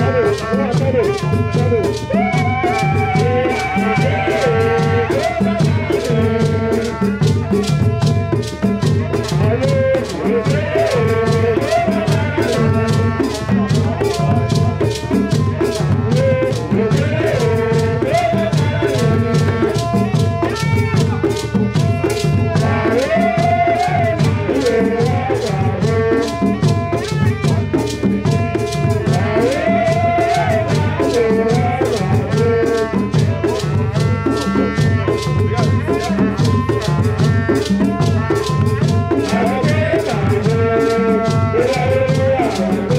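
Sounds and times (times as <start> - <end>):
drums and rattles beat: 0.0 - 42.9
wavering melody: 0.0 - 42.9.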